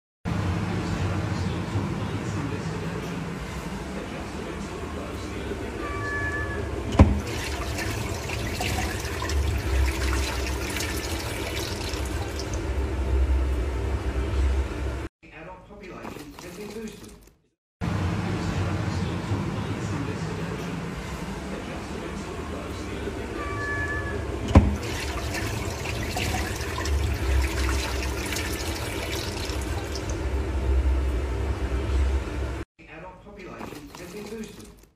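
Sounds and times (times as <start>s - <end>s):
water splashing in metal sink: 6.9s - 12.7s, 16.0s - 17.3s, 24.5s - 30.3s, 33.5s - 34.9s.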